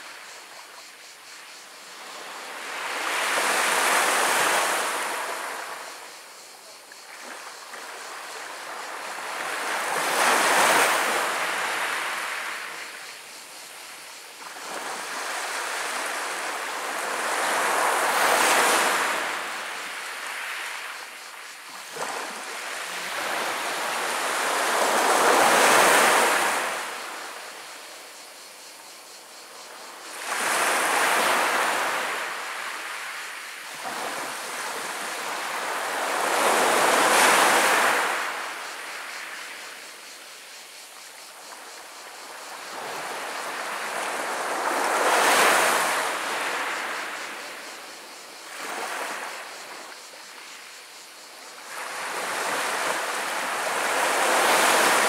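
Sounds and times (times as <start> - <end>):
waves rolling over pebble beach: 14.4 - 27.5, 30.0 - 39.6, 42.1 - 47.7, 51.7 - 55.0.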